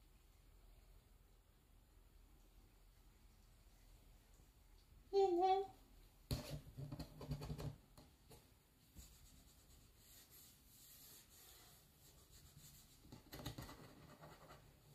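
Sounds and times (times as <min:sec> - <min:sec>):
soft rustle: 0:08.2 - 0:14.8.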